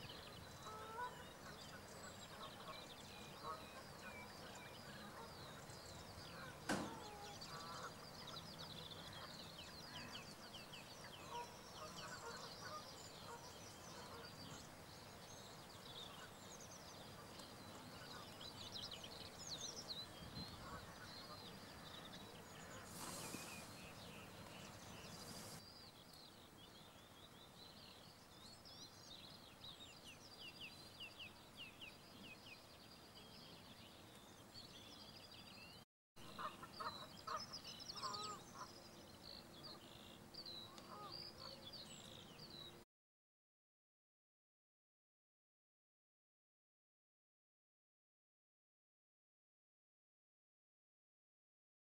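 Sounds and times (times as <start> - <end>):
distant birds chirping: 0.0 - 42.8
wind on microphone: 20.0 - 20.9.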